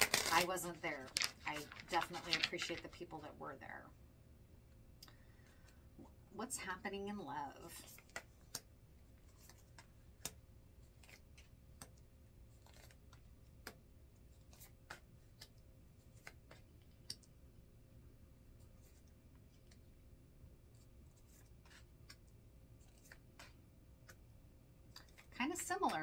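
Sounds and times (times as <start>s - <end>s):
cards being shuffled: 0.0s - 3.2s, 7.7s - 17.3s, 20.7s - 26.0s
low steady hum: 0.0s - 26.0s.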